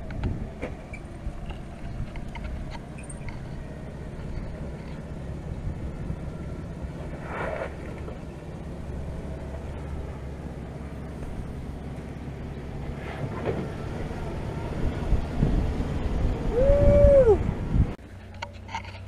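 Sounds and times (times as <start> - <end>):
wind on microphone: 0.0 - 3.5, 14.0 - 18.0
truck engine low rumble: 0.0 - 19.0.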